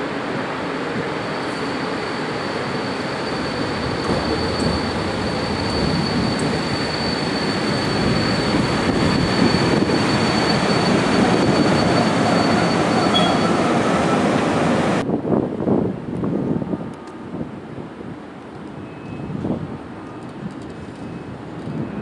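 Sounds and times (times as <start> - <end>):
train wheels rumbling on rail: 0.0 - 22.0
thin high whine: 1.2 - 13.6
wind on microphone: 3.3 - 12.4, 14.9 - 22.0.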